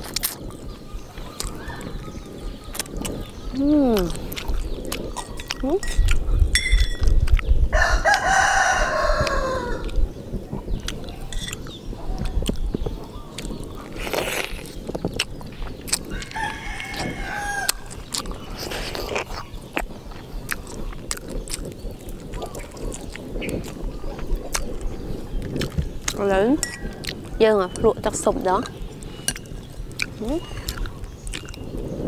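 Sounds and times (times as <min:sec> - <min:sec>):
rooster crowing: 0:07.7 - 0:09.8, 0:16.1 - 0:17.9.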